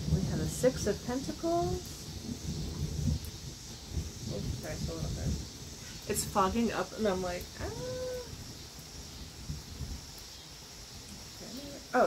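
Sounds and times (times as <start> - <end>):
low rumble: 0.0 - 8.4
rain hissing: 0.0 - 12.0.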